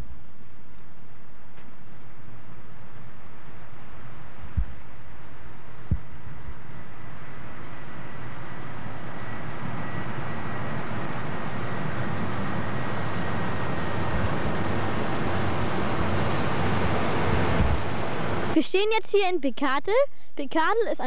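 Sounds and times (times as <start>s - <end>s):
train engine and wheels rumbling: 0.0s - 21.0s
thin high steady tone: 10.5s - 19.2s.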